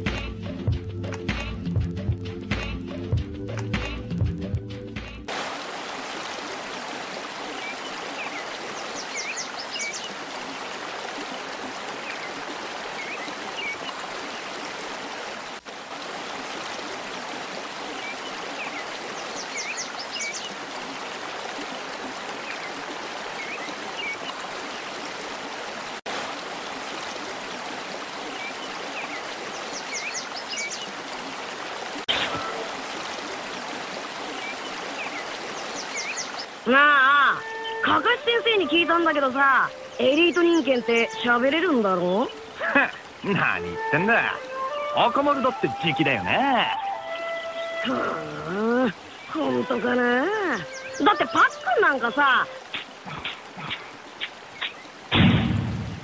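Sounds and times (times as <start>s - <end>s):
flowing water: 0.0s - 56.0s
small birds chirping: 7.5s - 10.7s, 11.9s - 14.7s, 17.8s - 20.6s, 22.4s - 24.9s, 28.2s - 31.0s, 34.3s - 36.6s, 38.6s - 44.9s, 50.3s - 55.1s
sharp hit: 55.1s - 56.0s.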